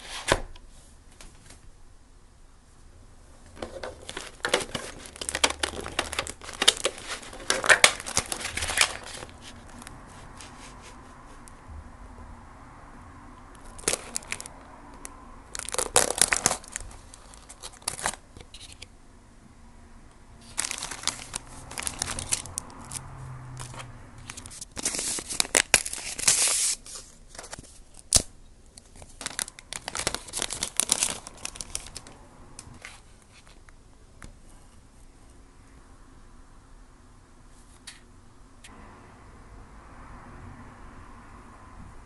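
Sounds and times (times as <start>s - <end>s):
plastic film crinkling and tearing: 3.6s - 9.9s, 13.6s - 14.5s, 15.5s - 18.8s, 20.4s - 32.2s.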